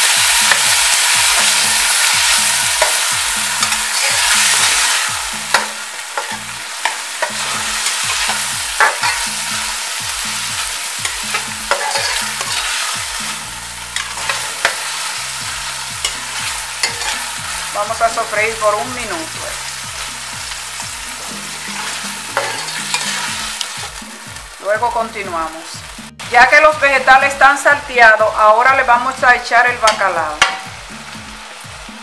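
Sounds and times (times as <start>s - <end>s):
vegetables sizzling in hot oil: 0.0s - 32.0s
metal spoon scraping pot: 11.0s - 13.0s, 14.0s - 15.1s, 16.0s - 17.7s, 21.2s - 23.9s.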